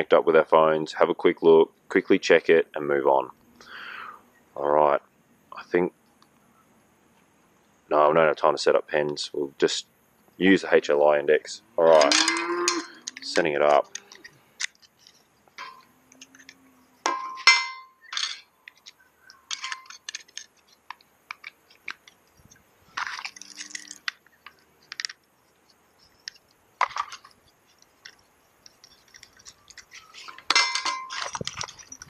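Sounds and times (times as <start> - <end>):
parts clinking on metal table: 11.9 - 20.7, 26.3 - 32.0.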